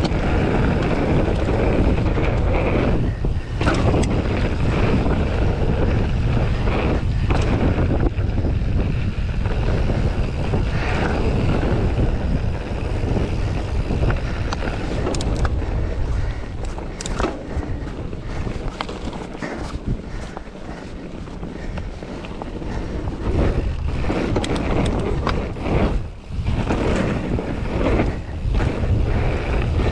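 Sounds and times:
bike clicks and rattles: 0:00.0 - 0:29.9
bike tyres rolling on trail: 0:00.0 - 0:29.9
wind buffeting microphone: 0:00.0 - 0:29.9.

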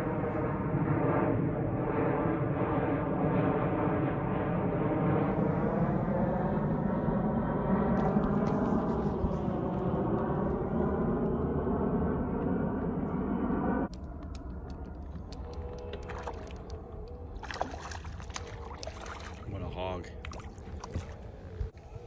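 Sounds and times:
droning hum: 0:00.0 - 0:22.0
fish splashing in water: 0:15.5 - 0:19.5, 0:20.2 - 0:21.6.

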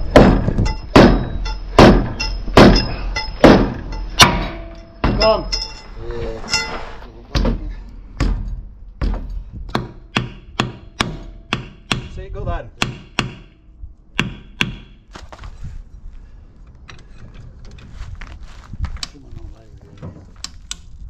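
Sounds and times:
sharp knocks: 0:00.0 - 0:05.8, 0:07.3 - 0:13.6, 0:14.2 - 0:15.2.

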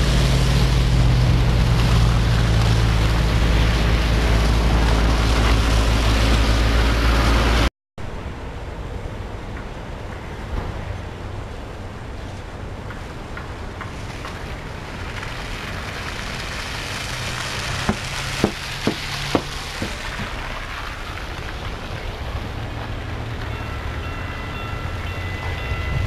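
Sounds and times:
tyres hissing through wet snow: 0:00.0 - 0:07.7, 0:13.8 - 0:26.0
sharp knocks: 0:17.9 - 0:20.4
light-rail train high tones: 0:22.2 - 0:26.0.

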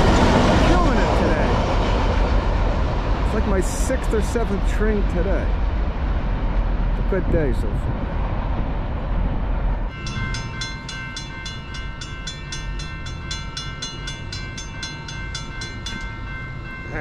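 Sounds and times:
low wind rumble: 0:00.0 - 0:17.0
crossing warning bell ringing: 0:09.9 - 0:17.0.

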